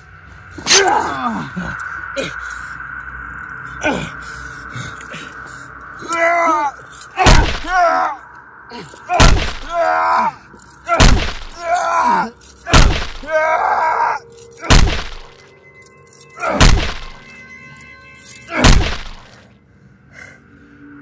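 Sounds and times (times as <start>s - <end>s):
film score music: 0.0s - 21.0s
man groaning in pain: 0.6s - 2.5s, 6.0s - 14.2s.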